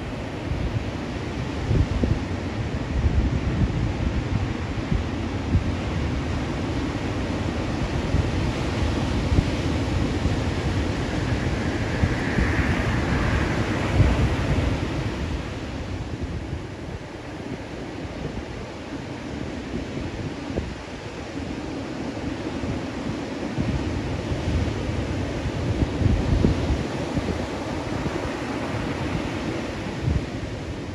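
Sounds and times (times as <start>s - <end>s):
wind buffeting microphone: 0.0s - 30.9s
ocean surf breaking: 7.1s - 30.9s.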